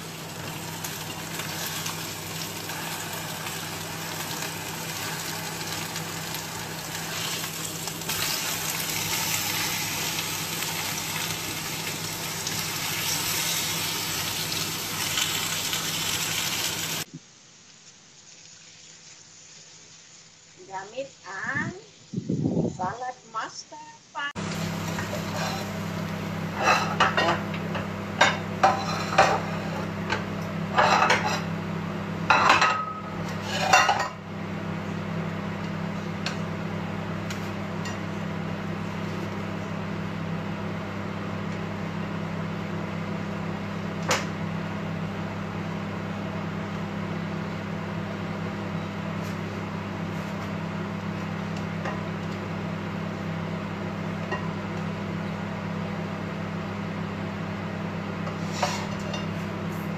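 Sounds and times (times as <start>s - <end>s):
tongs clattering on metal pan: 30.7s - 31.5s, 32.3s - 34.2s.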